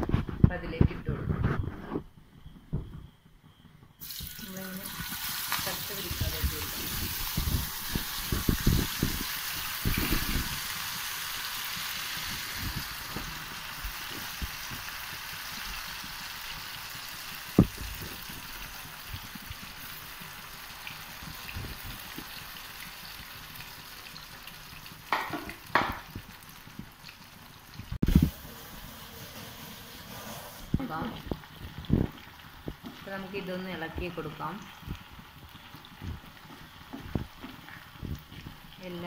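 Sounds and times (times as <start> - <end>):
potatoes sizzling in oil: 4.0 - 39.0.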